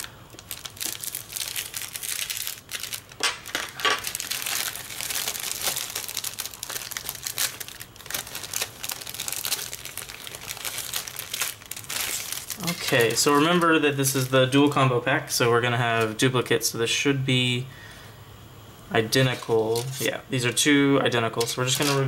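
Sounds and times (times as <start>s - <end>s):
plastic bag crinkling: 0.0s - 14.8s, 19.2s - 20.2s, 21.4s - 22.0s.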